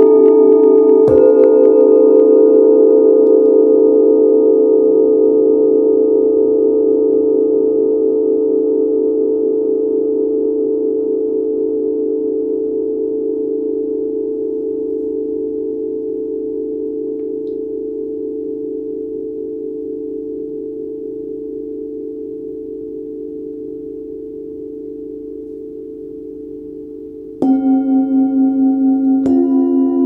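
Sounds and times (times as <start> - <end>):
singing bowl struck: 1.0 - 4.3, 27.4 - 30.0
singing bowls ringing: 1.0 - 18.0, 27.2 - 30.0.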